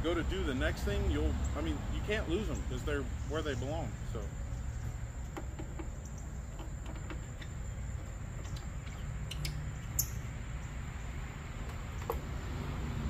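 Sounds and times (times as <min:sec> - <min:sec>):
crickets droning: 0:00.0 - 0:13.0.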